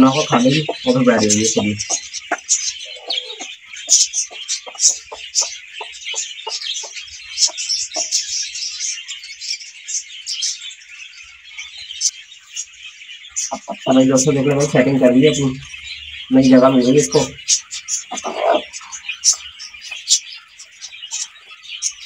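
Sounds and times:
hen clucking: 0:00.0 - 0:08.4, 0:13.4 - 0:15.7, 0:16.3 - 0:20.2
small birds chirping: 0:00.0 - 0:22.0.

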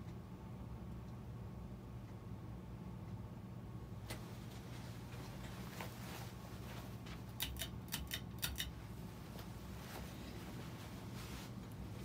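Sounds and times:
ceiling fan motor hum: 0:00.0 - 0:12.0
sharp clicks: 0:07.4 - 0:08.8.

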